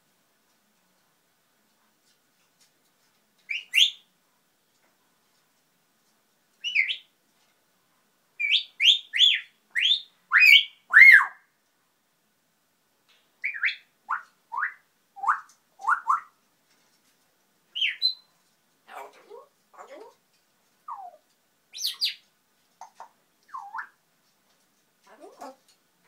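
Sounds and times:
parrot whistling: 3.5 - 4.0, 17.8 - 18.3, 20.9 - 22.2, 23.5 - 24.0.

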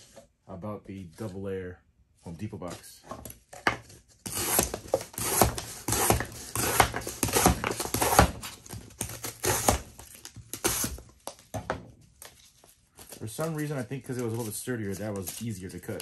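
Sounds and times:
knife slicing cardboard: 3.8 - 11.1.

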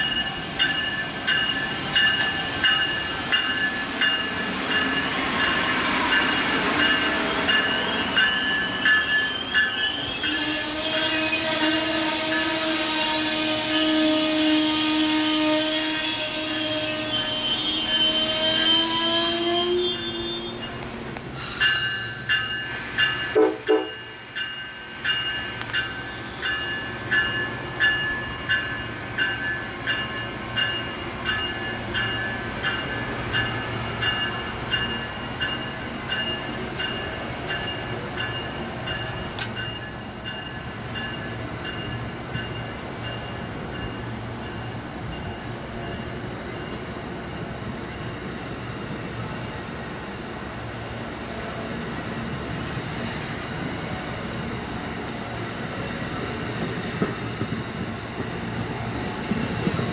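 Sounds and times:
train horn chord: 23.4 - 24.0.

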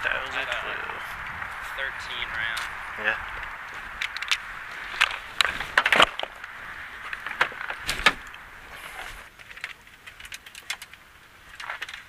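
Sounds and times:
truck door opening: 7.3 - 8.3.

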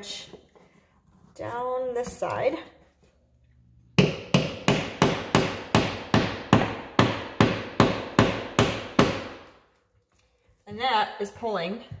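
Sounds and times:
hammer striking wooden wedge: 4.0 - 9.6.

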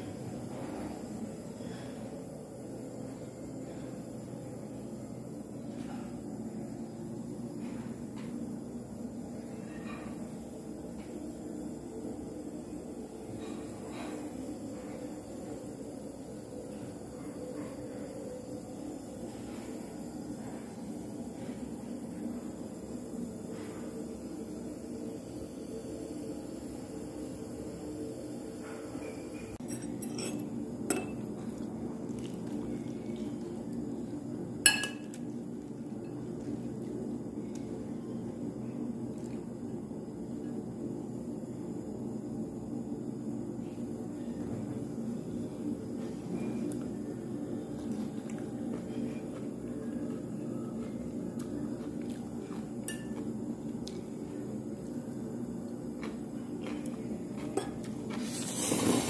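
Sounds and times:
low restaurant din: 0.0 - 42.1, 42.8 - 59.0
dishes and cutlery clinking: 29.0 - 31.2, 52.8 - 53.3.

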